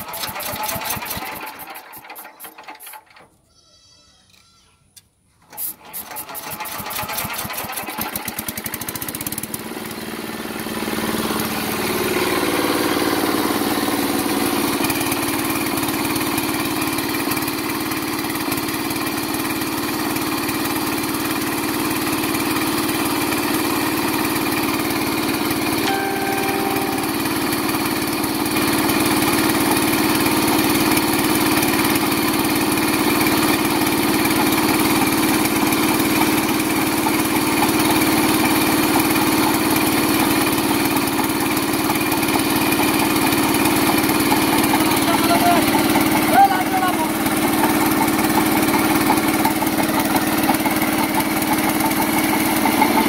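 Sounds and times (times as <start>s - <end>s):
small diesel engine starting and running: 0.0s - 3.4s, 5.2s - 53.0s.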